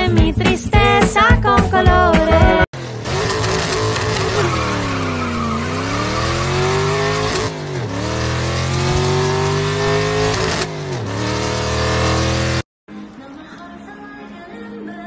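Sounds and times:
race car engine revving: 2.8s - 12.7s.

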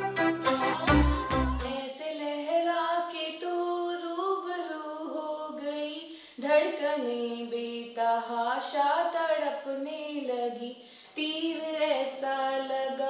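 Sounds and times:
intro music beat: 0.0s - 1.8s
woman singing unaccompanied: 0.4s - 13.0s.

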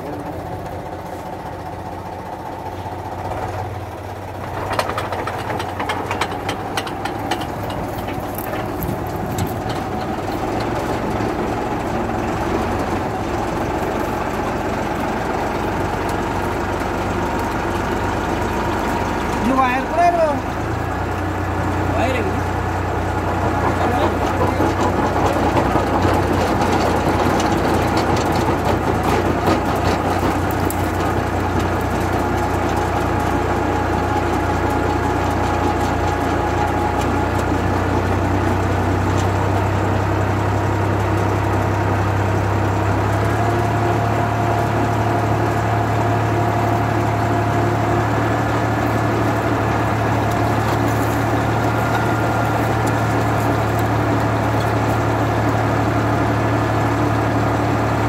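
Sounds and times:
tractor diesel engine: 0.0s - 58.0s
clicks and rattles: 4.3s - 13.0s, 23.4s - 37.6s.

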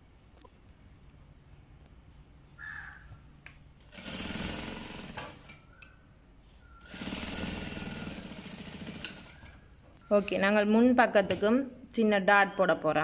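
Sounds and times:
sewing machine stitching: 3.8s - 5.6s, 6.8s - 9.6s.

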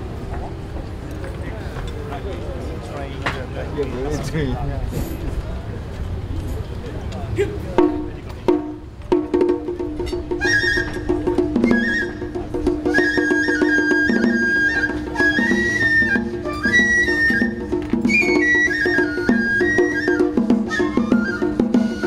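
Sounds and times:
bamboo flute melody: 7.8s - 22.0s.

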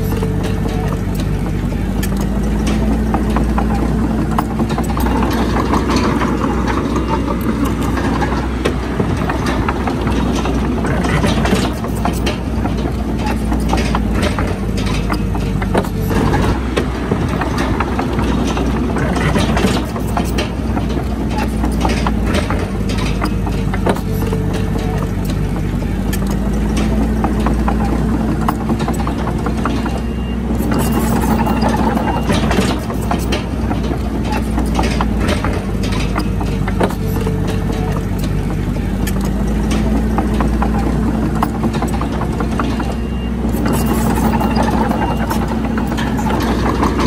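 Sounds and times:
bulldozer diesel engine running: 0.0s - 47.0s
knocks and scrapes from machine: 0.0s - 47.0s.

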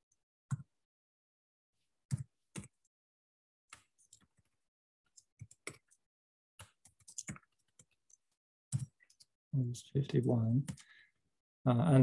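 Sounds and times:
computer keyboard keys clicking: 6.6s - 9.3s.

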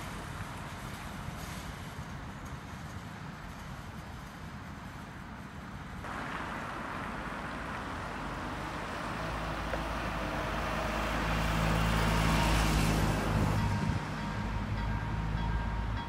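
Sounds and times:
car passing close by: 6.1s - 14.7s
level crossing warning bell: 12.0s - 16.0s.

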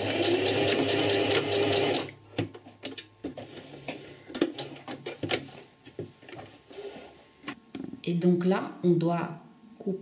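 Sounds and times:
sewing machine running: 0.0s - 2.1s.

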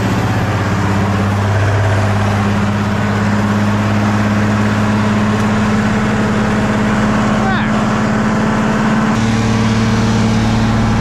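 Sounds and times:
diesel truck engine idling: 0.0s - 11.0s.

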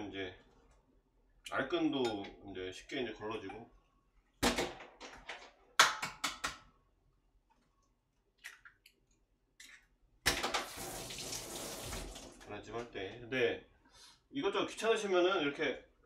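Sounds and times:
water rushing from tap: 10.4s - 12.5s.

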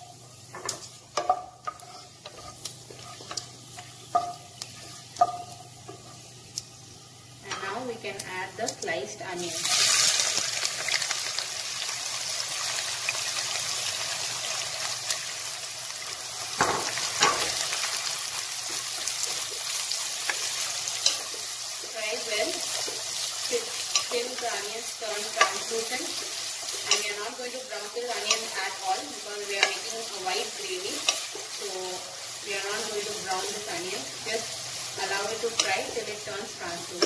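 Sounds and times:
onions sizzling in hot oil: 0.0s - 37.0s
wooden spatula scraping: 1.6s - 3.9s.

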